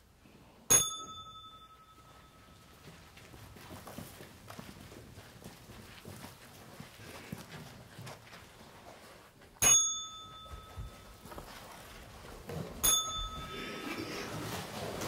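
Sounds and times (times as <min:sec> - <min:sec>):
typewriter bell dinging: 0:00.7 - 0:02.6, 0:09.6 - 0:11.2, 0:12.8 - 0:13.7.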